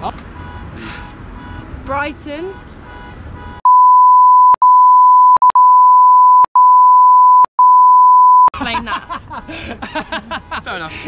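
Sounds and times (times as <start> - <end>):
censor bleep: 3.6 - 8.5
clicks between bleeps: 3.7 - 8.5.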